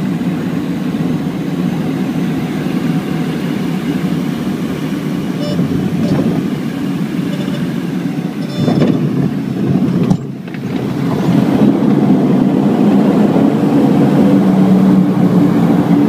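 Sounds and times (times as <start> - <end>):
turboprop engines in cabin: 0.0 - 16.0.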